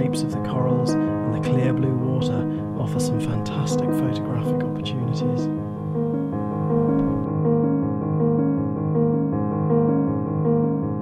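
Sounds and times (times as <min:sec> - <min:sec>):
keyboard playing held notes: 0:00.0 - 0:11.0.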